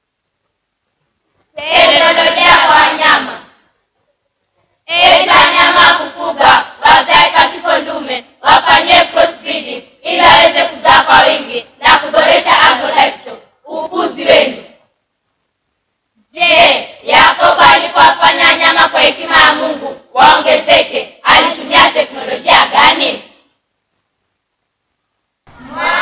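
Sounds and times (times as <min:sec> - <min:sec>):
children's voices in unison: 0:01.6 - 0:03.6, 0:04.9 - 0:14.7, 0:16.4 - 0:23.3.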